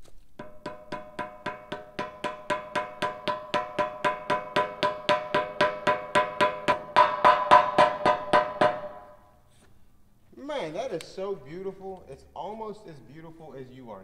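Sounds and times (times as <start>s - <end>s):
rubber mallet tapping metal: 0.4s - 9.2s.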